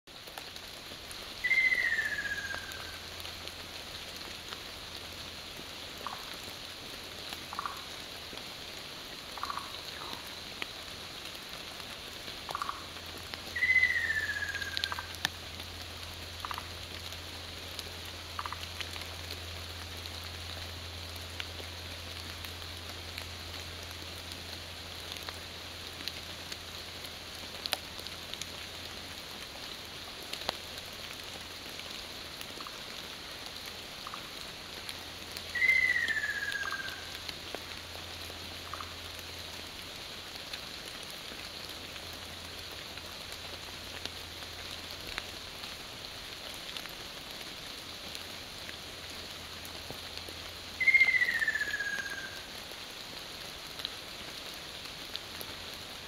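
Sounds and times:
steady hiss: 0:00.1 - 0:56.0
faint ticks: 0:27.6 - 0:28.6.

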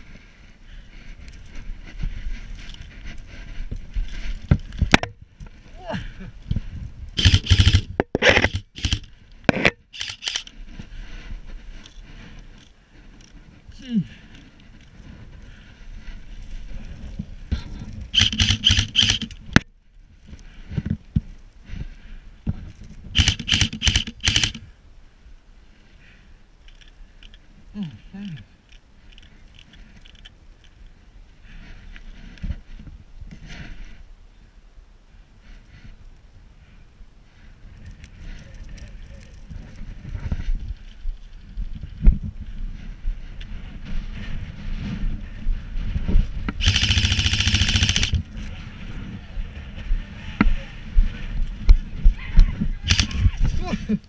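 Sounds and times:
rustling of grass and clothing: 0:00.0 - 0:54.0
airsoft rifle shot: 0:07.2 - 0:10.2
airsoft rifle full-auto burst: 0:07.2 - 0:10.5, 0:18.1 - 0:19.3, 0:23.2 - 0:24.6, 0:46.6 - 0:48.2, 0:52.9 - 0:53.2.

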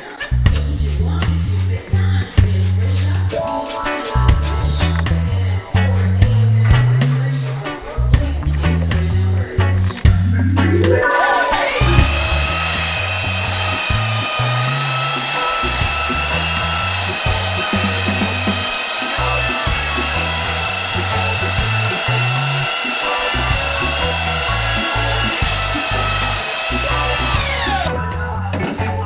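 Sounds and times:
background music with bass: 0:00.0 - 0:29.0
belt sander whine: 0:11.2 - 0:27.9.

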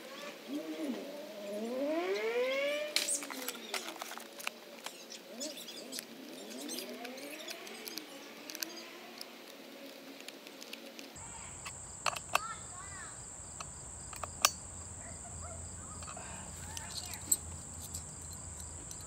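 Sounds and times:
faint gliding hum: 0:00.0 - 0:19.0
high insect buzz: 0:00.0 - 0:19.0
wrench metallic clicks: 0:11.6 - 0:12.5, 0:16.0 - 0:19.0.

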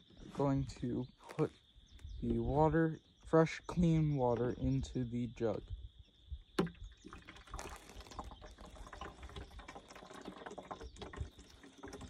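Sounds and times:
water pouring into plastic jug: 0:06.6 - 0:12.0.

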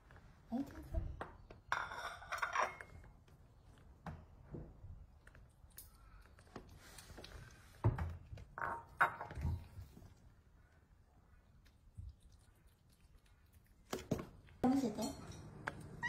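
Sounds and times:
plate clinking on tiled floor: 0:01.7 - 0:03.1
kitten crunching kibble: 0:05.0 - 0:08.6, 0:11.3 - 0:14.6.

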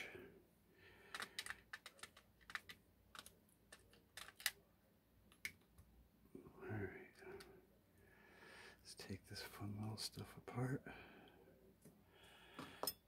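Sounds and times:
small metal parts clicking: 0:01.1 - 0:04.6.

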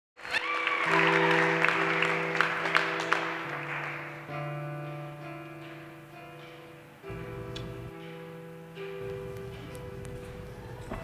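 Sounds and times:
audience applause: 0:00.2 - 0:04.3
slow music of long notes: 0:00.4 - 0:11.0.

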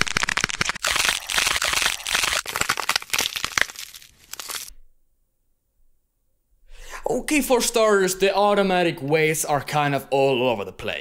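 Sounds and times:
dense crackling and crunching: 0:00.0 - 0:04.7.

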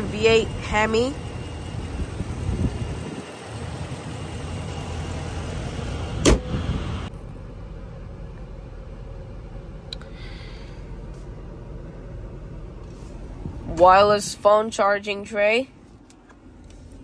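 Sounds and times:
steady low rumble: 0:00.0 - 0:17.0
car door slam with metallic ring: 0:06.2 - 0:06.6.

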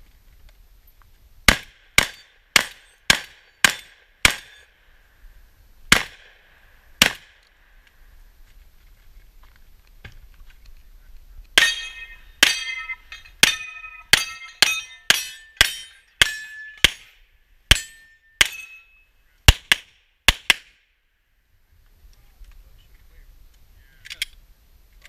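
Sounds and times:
pistol shots: 0:01.5 - 0:04.6, 0:05.9 - 0:06.4, 0:07.0 - 0:07.4
steel target ringing: 0:11.6 - 0:19.1.

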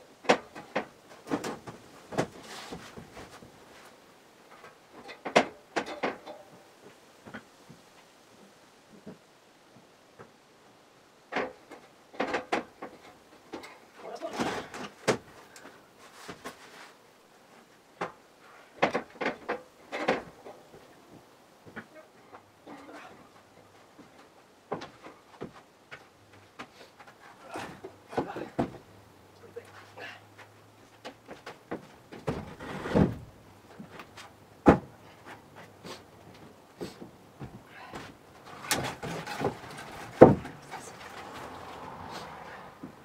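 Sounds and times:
wooden window knocks and clunks: 0:27.6 - 0:28.9, 0:31.3 - 0:33.9, 0:34.6 - 0:34.9, 0:37.4 - 0:41.1
floorboard knocks and thuds: 0:31.7 - 0:33.3, 0:34.6 - 0:34.9, 0:38.7 - 0:40.6.

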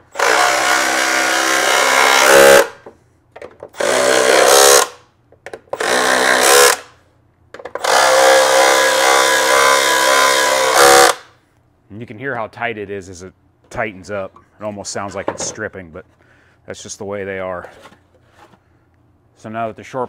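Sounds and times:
impact driver hammering: 0:00.2 - 0:03.0, 0:03.7 - 0:05.0, 0:05.7 - 0:06.9, 0:07.6 - 0:11.3.

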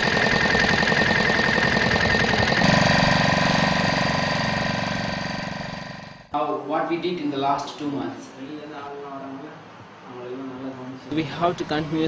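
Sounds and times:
small engine knocking: 0:00.0 - 0:06.3.

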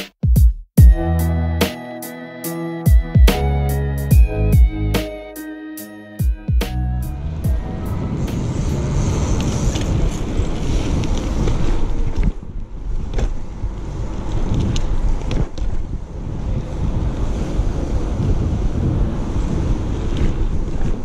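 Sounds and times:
tyres rolling on asphalt: 0:07.2 - 0:21.0
wind on microphone: 0:07.2 - 0:21.0.

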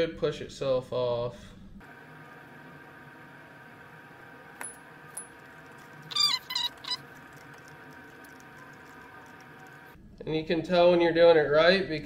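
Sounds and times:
steady background hum: 0:00.0 - 0:12.0
high squeaks of a turning screw: 0:06.1 - 0:07.0.

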